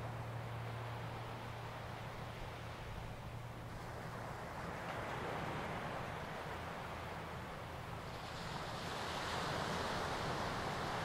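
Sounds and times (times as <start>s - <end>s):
small waves breaking on beach: 0.0s - 11.0s.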